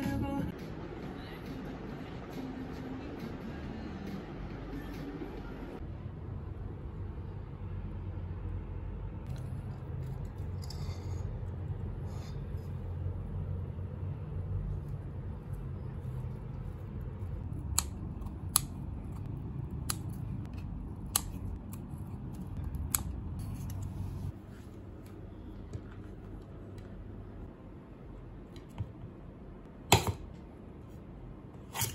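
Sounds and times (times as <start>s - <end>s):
steady low hum: 0.0s - 31.6s
scissors snipping leaves: 17.6s - 23.8s.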